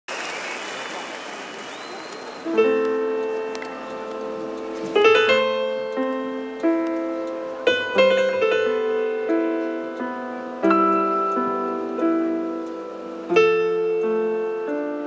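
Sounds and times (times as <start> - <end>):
slow piano chords: 1.6 - 15.0.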